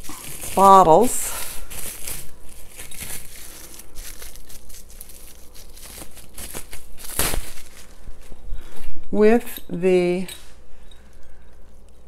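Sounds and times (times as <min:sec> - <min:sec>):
bubble wrap crinkling: 0:00.0 - 0:08.5.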